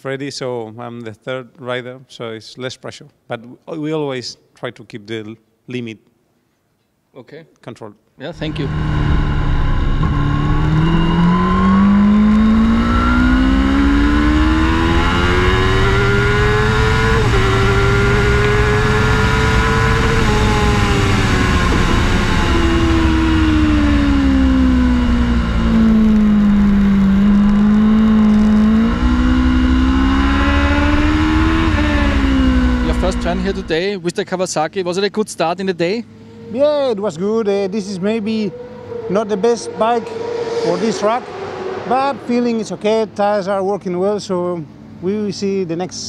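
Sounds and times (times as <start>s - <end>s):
motorcycle engine revving: 8.4s - 33.8s, 36.3s - 43.1s.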